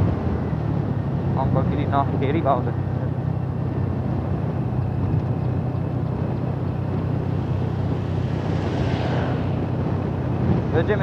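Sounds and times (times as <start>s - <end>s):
road and wind noise: 0.0s - 11.0s.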